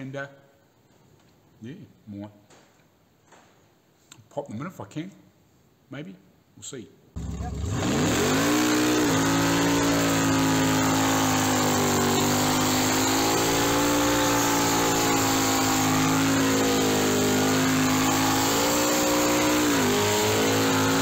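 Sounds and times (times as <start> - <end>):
car engine revving: 7.2 - 21.0.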